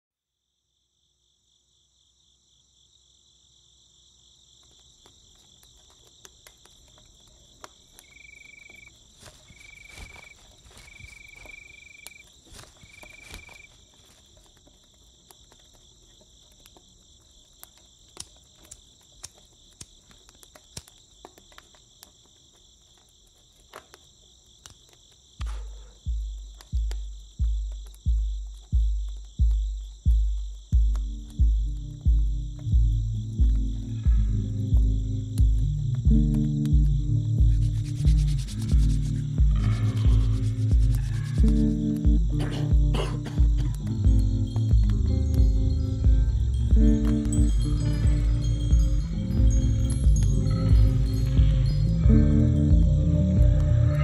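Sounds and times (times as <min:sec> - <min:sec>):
crickets chirring: 0:00.3 - 0:54.0
deep pulsing bass thuds: 0:26.1 - 0:53.9.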